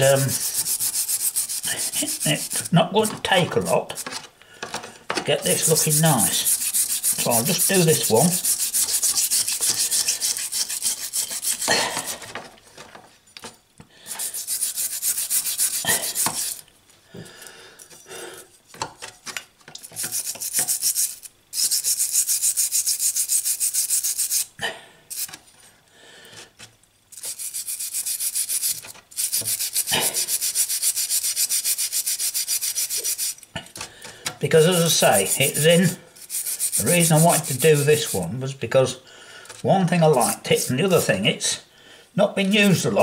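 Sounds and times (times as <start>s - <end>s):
wire brush scrubbing metal: 0.0s - 4.2s, 5.3s - 12.4s, 14.1s - 16.6s, 19.8s - 24.5s, 27.2s - 33.4s, 34.4s - 38.5s, 39.5s - 41.4s, 42.4s - 43.0s.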